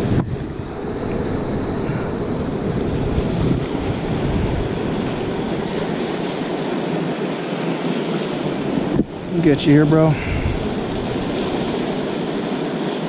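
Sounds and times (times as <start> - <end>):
river current rushing: 0.0 - 13.0
wind rumbling on microphone: 0.0 - 13.0.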